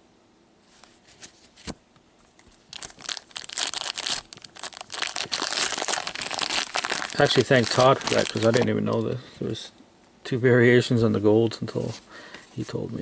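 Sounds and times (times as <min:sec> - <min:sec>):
wrapper crinkling and tearing: 0:02.5 - 0:09.0.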